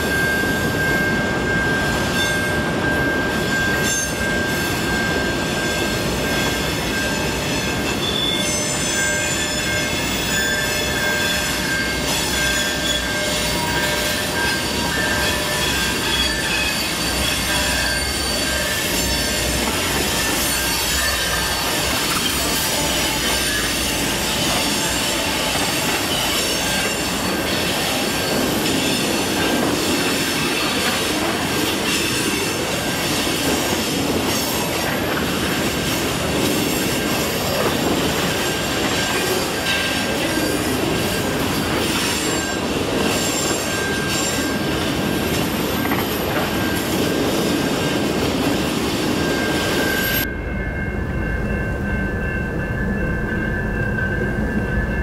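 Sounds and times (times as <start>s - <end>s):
high wheel squeal: 0.0s - 50.3s
train wheels rumbling on rails: 0.0s - 55.0s.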